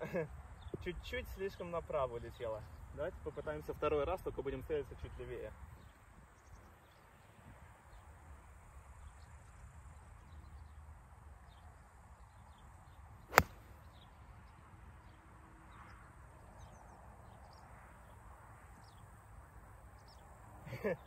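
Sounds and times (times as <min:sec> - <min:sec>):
golf club striking ball: 0:13.3 - 0:13.7.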